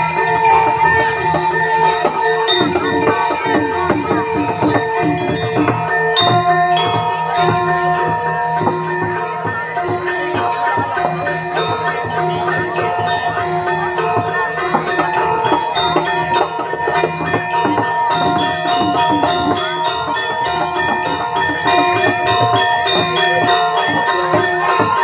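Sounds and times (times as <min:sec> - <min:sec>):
gamelan dance music: 0:00.0 - 0:25.0.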